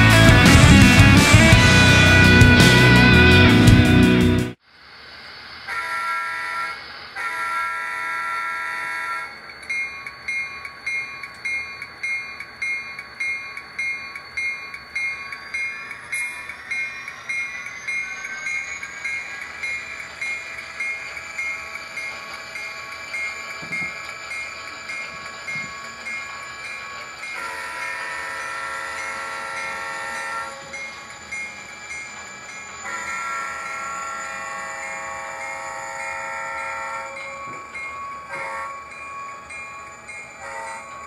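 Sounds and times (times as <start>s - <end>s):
diesel engine running: 0.0s - 4.6s
rising whine: 0.0s - 5.8s, 9.3s - 40.5s
locomotive horn blasts: 1.7s - 3.7s, 5.7s - 9.3s, 27.4s - 30.6s, 32.8s - 37.2s, 38.3s - 38.9s, 40.4s - 41.0s
bell ringing: 8.9s - 41.0s.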